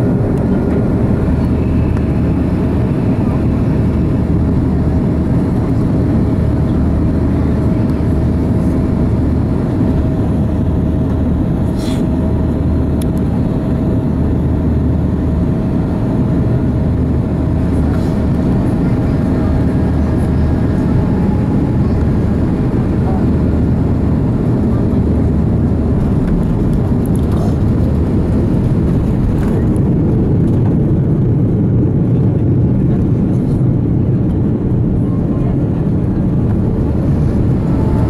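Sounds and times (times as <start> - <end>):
aircraft cabin engine rumble: 0.0 - 38.0
steady hum: 33.7 - 38.0.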